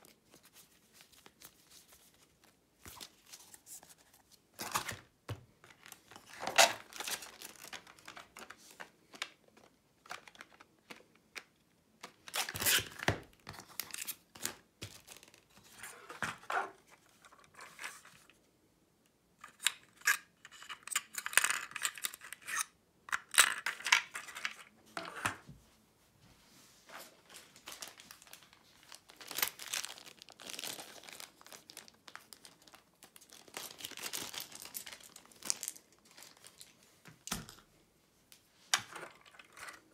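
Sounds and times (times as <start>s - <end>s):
cards and pieces rustling: 0.0s - 18.4s, 26.9s - 37.6s.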